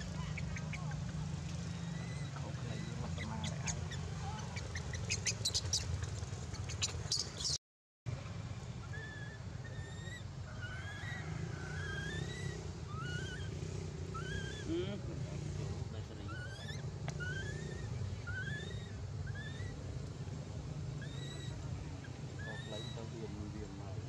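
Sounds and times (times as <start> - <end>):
high sliding chirping calls: 0.0 - 7.6, 8.8 - 14.8, 16.2 - 19.8.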